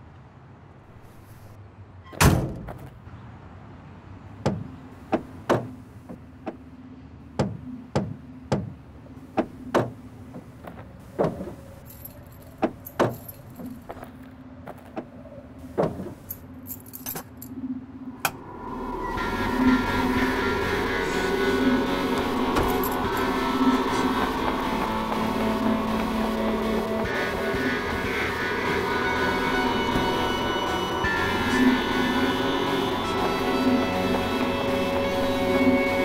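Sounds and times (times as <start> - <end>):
keys jangling: 11.7 - 14.0, 16.2 - 17.5.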